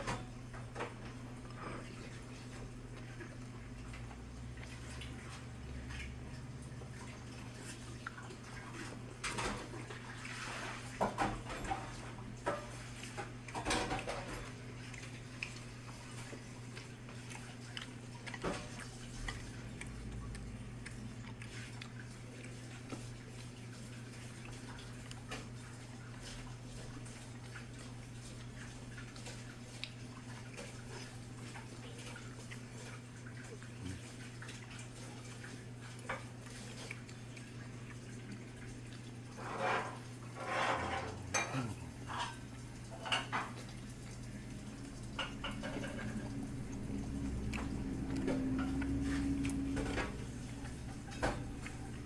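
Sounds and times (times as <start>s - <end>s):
dishes clattering: 10.9s - 14.6s, 39.3s - 43.7s, 45.0s - 46.4s
chopsticks and dishes clinking: 39.3s - 43.6s.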